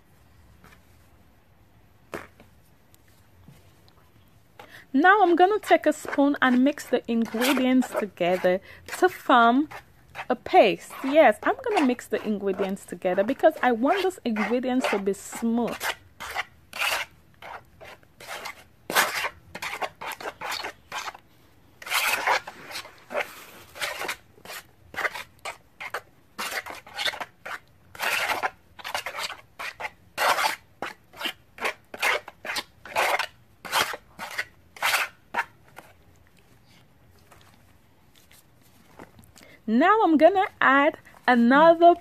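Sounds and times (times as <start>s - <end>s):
metal spoon scraping a bowl: 5.1s - 21.2s, 21.8s - 35.5s.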